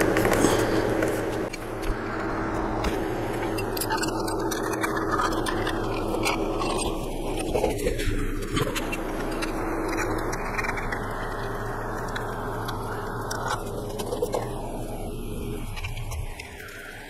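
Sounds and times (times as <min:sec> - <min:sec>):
steady rushing noise with hum: 0:00.0 - 0:17.0.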